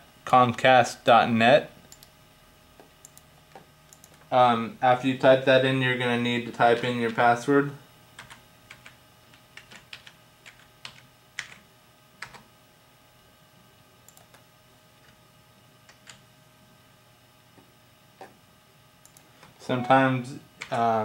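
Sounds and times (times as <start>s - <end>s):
computer keyboard typing: 3.9s - 4.2s, 8.2s - 11.6s, 12.2s - 12.5s, 14.1s - 14.4s, 15.9s - 16.2s.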